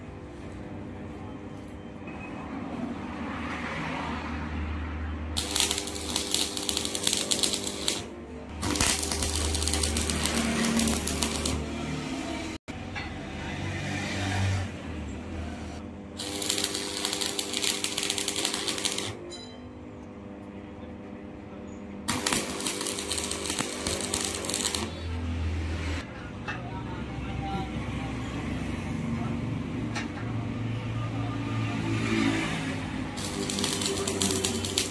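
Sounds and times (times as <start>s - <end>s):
arc welding crackling sizzle: 5.4s - 12.6s, 16.2s - 19.2s, 22.1s - 26.0s, 33.2s - 34.9s.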